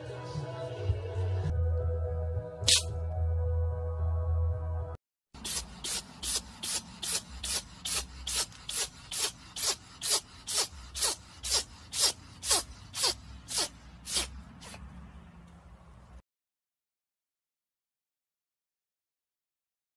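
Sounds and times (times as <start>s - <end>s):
cat sneezing: 5.4s - 14.8s.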